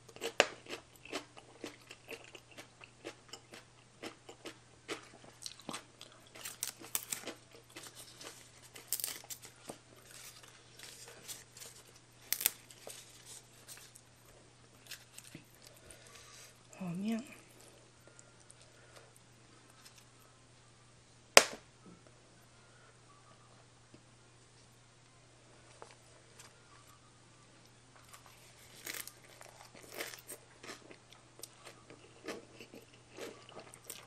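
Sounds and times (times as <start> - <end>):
chewing and crunching: 0.0 - 20.3, 28.0 - 34.0.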